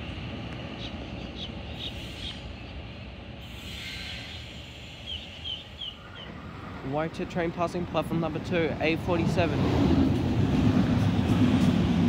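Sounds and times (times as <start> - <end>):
diesel locomotive rumbling: 0.0 - 12.0.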